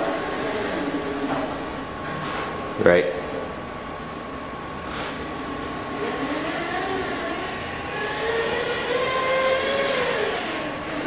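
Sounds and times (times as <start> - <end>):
robot drive motors whining: 4.9 - 11.0.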